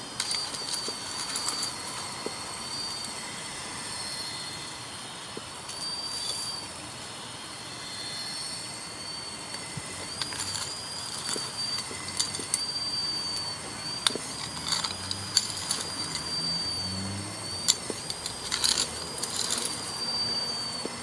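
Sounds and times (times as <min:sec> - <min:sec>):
electric motors whining: 0:00.0 - 0:21.0
gravel clicking and rattling: 0:00.1 - 0:02.4, 0:09.5 - 0:16.8, 0:17.4 - 0:21.0.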